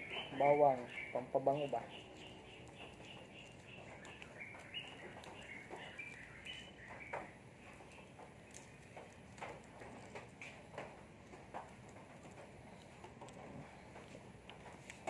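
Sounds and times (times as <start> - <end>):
faint bird chirps: 0.0 - 8.1.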